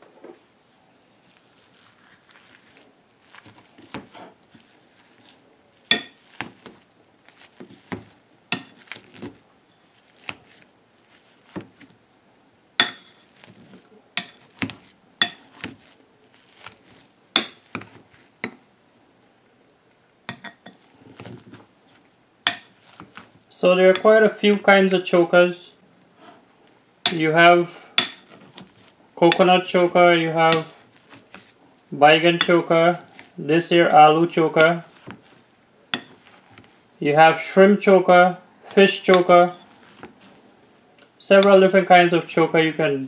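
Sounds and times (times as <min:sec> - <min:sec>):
potatoes squashing: 0:00.9 - 0:12.1, 0:12.8 - 0:18.7, 0:20.3 - 0:24.1, 0:27.0 - 0:37.0, 0:38.7 - 0:43.0.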